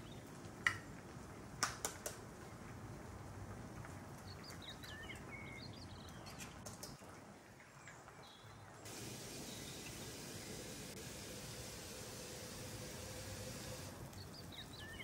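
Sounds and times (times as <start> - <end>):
sauce sizzling in frying pan: 8.9 - 15.0.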